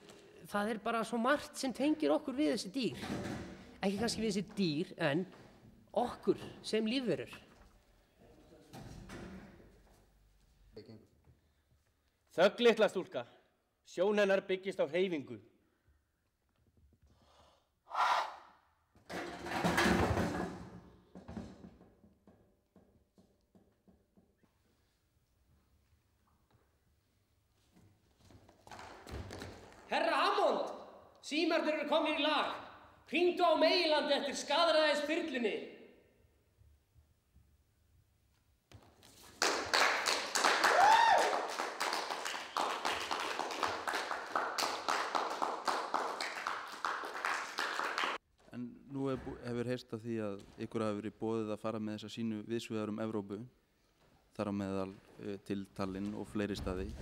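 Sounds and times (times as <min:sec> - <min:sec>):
rough huff: 0:17.1 - 0:18.6
audience applauding: 0:39.2 - 0:48.2
person whooping: 0:40.6 - 0:41.5.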